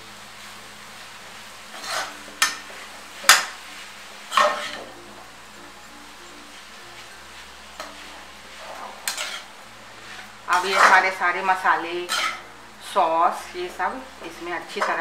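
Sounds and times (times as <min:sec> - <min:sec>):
metal spatula scraping wok: 0:01.7 - 0:04.9, 0:07.0 - 0:15.0.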